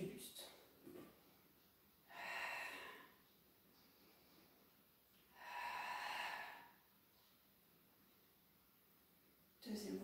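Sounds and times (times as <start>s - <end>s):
forceful breathy exhalation: 2.1s - 3.2s, 5.3s - 6.8s.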